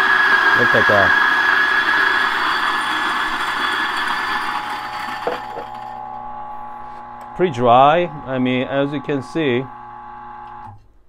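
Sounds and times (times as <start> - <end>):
coffee grinder grinding: 0.0 - 10.8
grinder clicks: 3.4 - 6.0.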